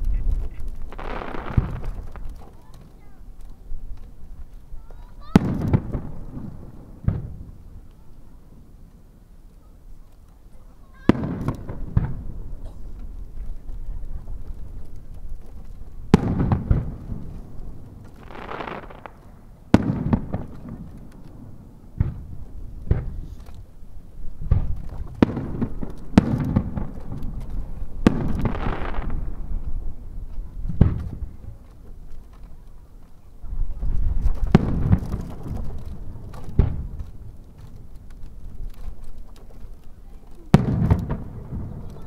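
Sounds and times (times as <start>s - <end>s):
firework shells booming: 0.0s - 7.9s, 11.0s - 32.4s, 33.7s - 42.0s.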